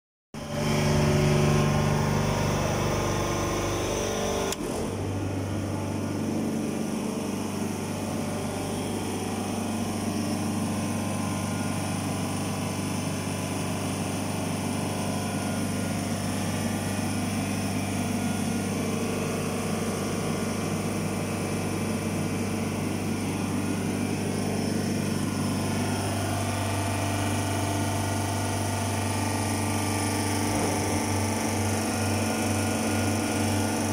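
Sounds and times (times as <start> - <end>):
compressor humming: 0.4 - 33.9.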